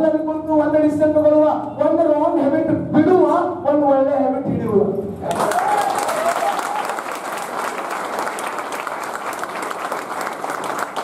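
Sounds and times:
large audience applauding: 0:05.2 - 0:11.0.

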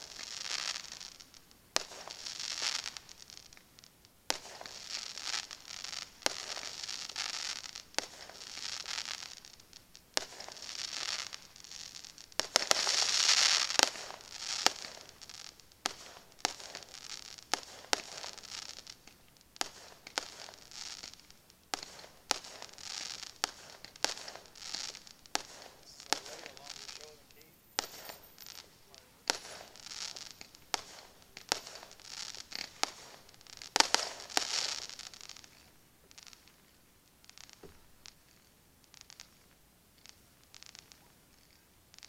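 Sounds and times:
crackling and hiss of stars: 0:00.0 - 0:42.0
firework shells bursting: 0:00.0 - 0:42.0.

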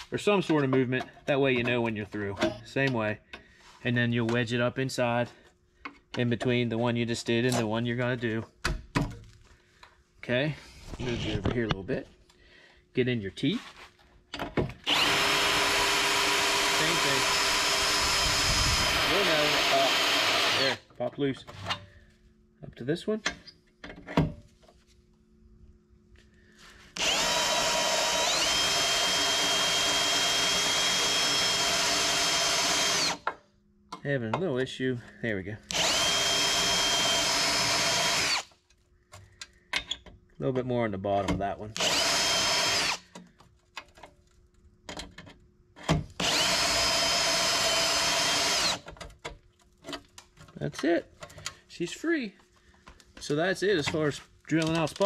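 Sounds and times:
power drill motor whine: 0:14.8 - 0:20.8, 0:26.9 - 0:33.3, 0:35.7 - 0:38.5, 0:41.8 - 0:43.1, 0:46.2 - 0:48.8
cutter grinding sheet metal: 0:14.9 - 0:20.8.

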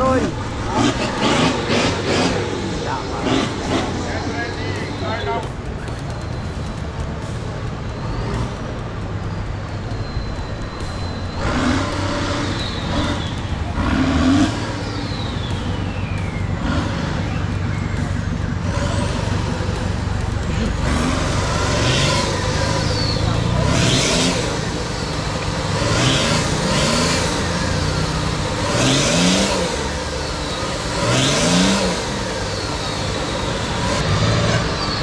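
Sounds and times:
off-road truck engines: 0:00.0 - 0:35.0.

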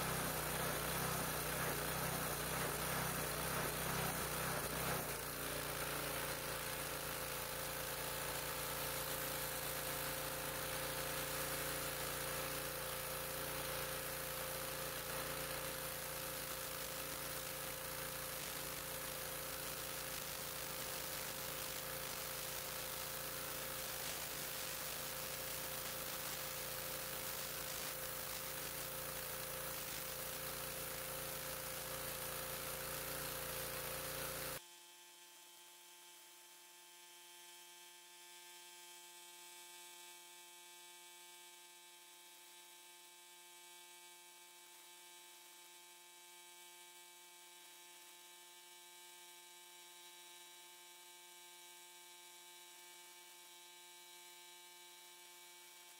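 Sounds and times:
high-pressure spray hissing on concrete: 0:00.0 - 0:34.6
pressure washer engine running: 0:00.0 - 0:34.6.

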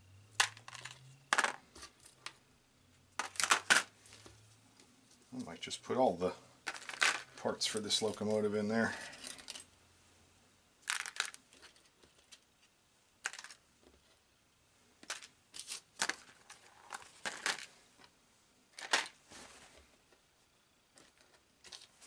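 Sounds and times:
small parts clicking and rustling: 0:00.2 - 0:02.5, 0:03.1 - 0:05.6, 0:06.6 - 0:09.8, 0:10.8 - 0:14.2, 0:15.0 - 0:19.2, 0:20.9 - 0:22.0.

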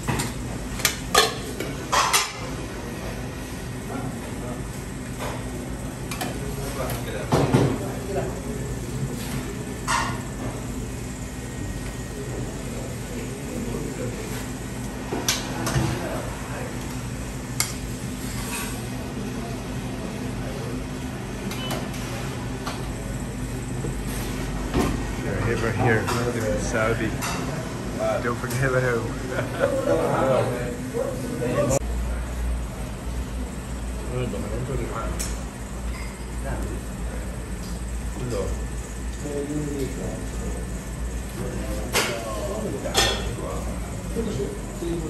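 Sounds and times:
steady hum: 0:00.0 - 0:45.0
murmur of voices: 0:25.2 - 0:33.1.

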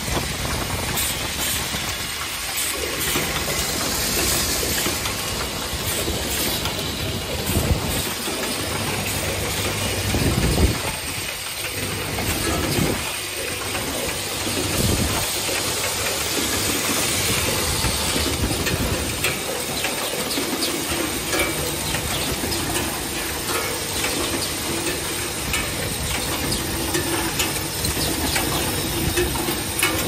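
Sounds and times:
pneumatic clicks and metal clatter: 0:00.0 - 0:30.0.

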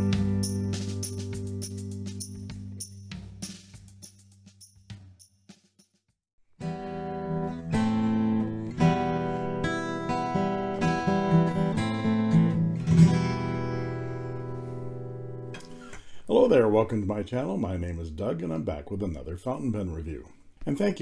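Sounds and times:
acoustic guitar chords: 0:00.0 - 0:02.8, 0:06.6 - 0:15.8.

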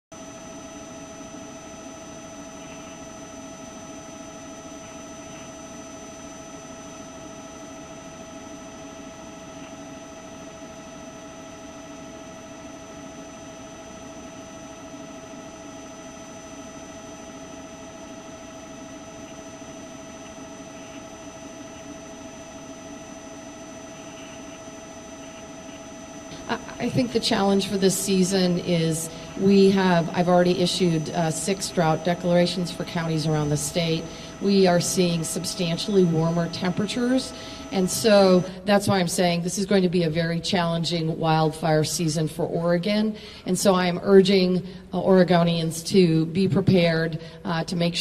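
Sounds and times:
helicopter engine running: 0:00.2 - 0:41.4.

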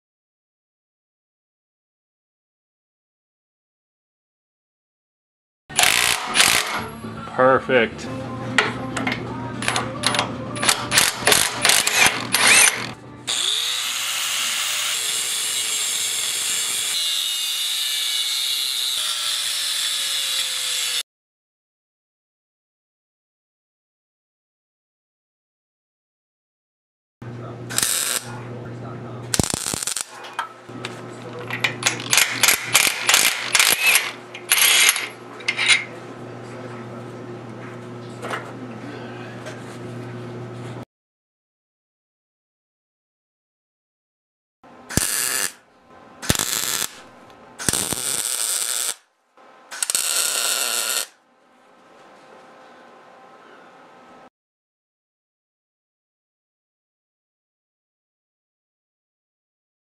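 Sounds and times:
impact wrench hammering: 0:05.7 - 0:06.8, 0:10.6 - 0:13.5, 0:32.0 - 0:35.1, 0:44.9 - 0:45.6, 0:46.2 - 0:47.0
angle grinder cutting steel: 0:05.7 - 0:06.9, 0:10.7 - 0:21.0, 0:27.7 - 0:28.3, 0:29.4 - 0:30.1, 0:31.8 - 0:35.9, 0:44.9 - 0:45.6, 0:46.2 - 0:47.0, 0:47.6 - 0:49.0, 0:49.7 - 0:51.2.

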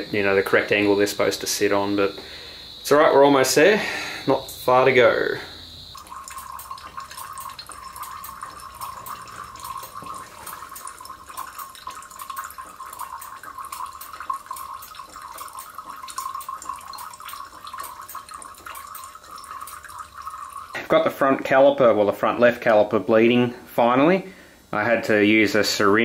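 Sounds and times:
fluid trickling into glass jar: 0:02.6 - 0:21.5.

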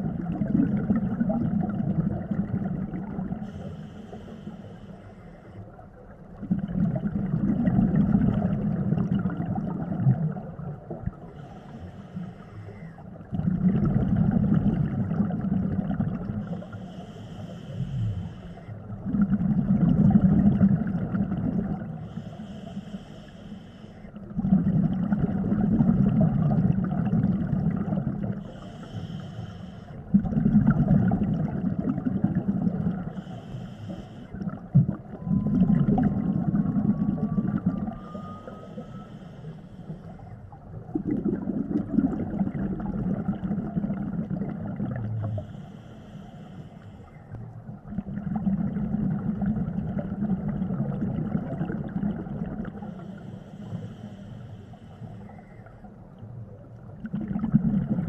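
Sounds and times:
exhaled air bubbling underwater: 0:00.0 - 0:58.0
regulator inhale hiss: 0:03.4 - 0:05.8, 0:11.2 - 0:13.1, 0:16.4 - 0:18.9, 0:21.9 - 0:24.2, 0:28.4 - 0:30.1, 0:33.0 - 0:34.4, 0:38.0 - 0:40.5, 0:45.2 - 0:47.5, 0:52.8 - 0:55.9.

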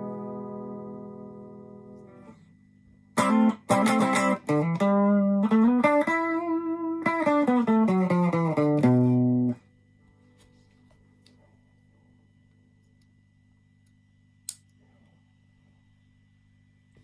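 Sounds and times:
electric guitar melody: 0:00.0 - 0:02.4, 0:03.2 - 0:09.6.

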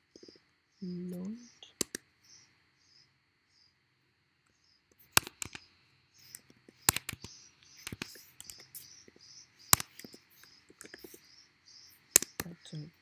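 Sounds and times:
keyboard key clicks: 0:05.1 - 0:05.6, 0:06.3 - 0:08.7.

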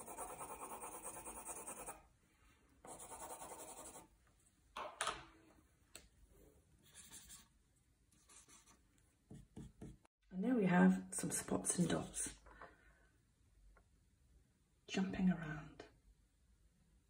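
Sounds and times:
pencil shading on paper: 0:00.0 - 0:02.0, 0:02.9 - 0:04.1.

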